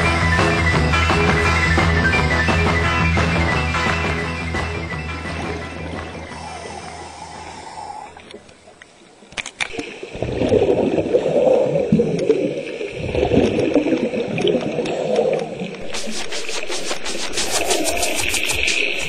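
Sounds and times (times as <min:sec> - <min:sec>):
underwater exhaust bubbles gurgling: 0:10.1 - 0:15.9
sharp clicks: 0:15.8 - 0:19.0.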